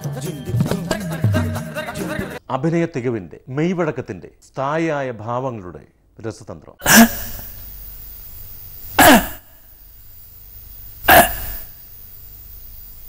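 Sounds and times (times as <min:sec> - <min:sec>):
man's breathy vocal bursts: 0:06.8 - 0:07.6.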